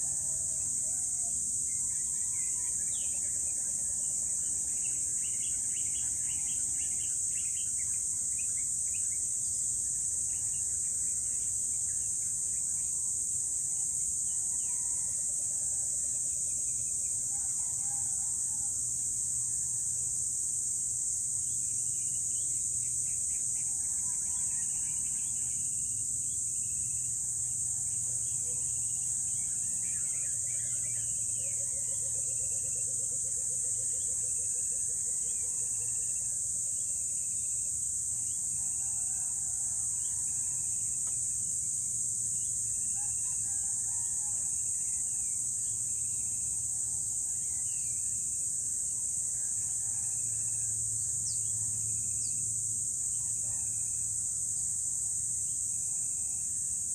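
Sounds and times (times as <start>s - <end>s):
insect chorus: 0.0s - 56.9s.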